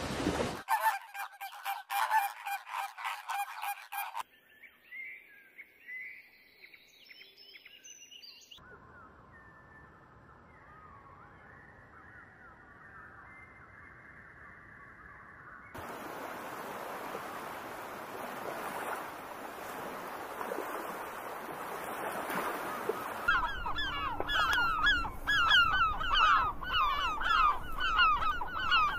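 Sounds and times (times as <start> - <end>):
gulls calling: 0.4 - 4.2, 15.8 - 28.9
outdoor background hiss: 15.8 - 21.9
faint muffled bird calls: 15.8 - 28.9.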